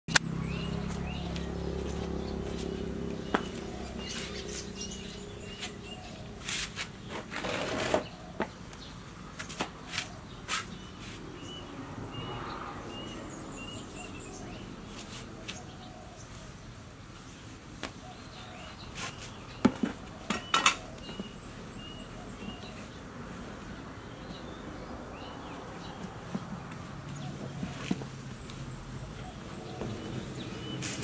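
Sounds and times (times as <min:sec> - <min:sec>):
small bird chirping: 0:00.2 - 0:07.2, 0:08.0 - 0:16.7, 0:17.3 - 0:23.0
boots and sandals handled: 0:00.8 - 0:11.6, 0:13.9 - 0:16.5, 0:17.2 - 0:24.6, 0:25.4 - 0:31.0.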